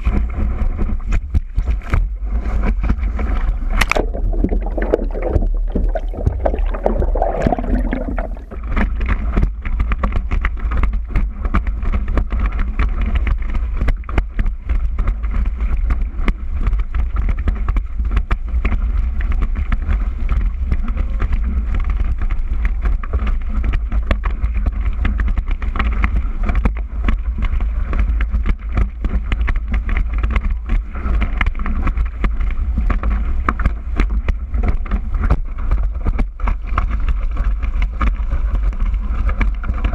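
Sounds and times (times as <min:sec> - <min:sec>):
water rushing and splashing: 0:01.6 - 0:09.2.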